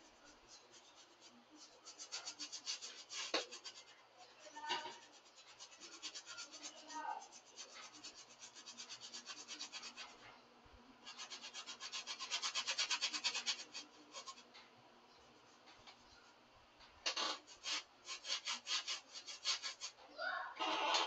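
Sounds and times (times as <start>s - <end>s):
paintbrush scratching on canvas: 0.0s - 10.3s, 11.0s - 14.5s, 17.2s - 20.0s.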